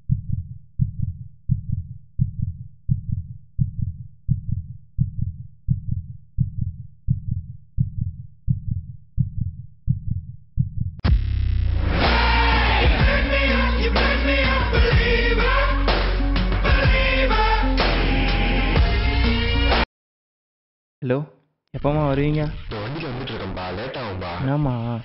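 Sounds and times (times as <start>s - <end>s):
heartbeat thumps: 0.0s - 12.0s, 12.8s - 13.4s
song with singing: 12.0s - 19.1s.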